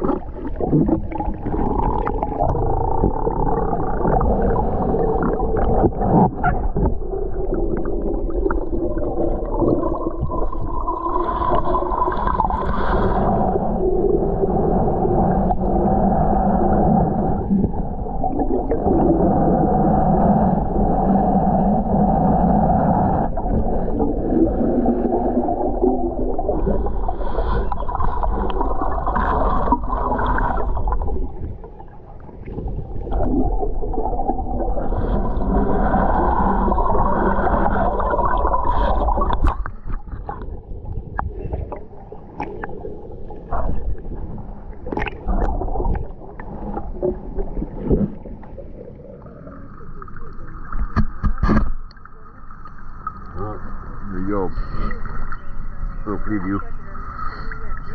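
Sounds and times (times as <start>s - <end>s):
water splashing: 0.0s - 13.6s, 23.3s - 53.5s
muffled underwater rushing water: 0.0s - 57.9s.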